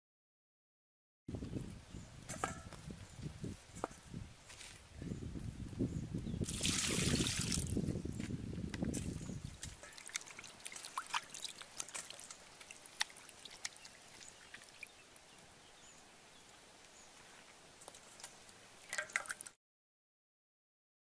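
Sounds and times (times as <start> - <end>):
water dripping: 6.4 - 7.8, 8.7 - 19.6
water pouring: 6.4 - 7.8, 9.4 - 15.0, 18.0 - 19.6
water splashing in a steel bowl: 6.4 - 7.8, 9.5 - 15.0, 18.1 - 19.6.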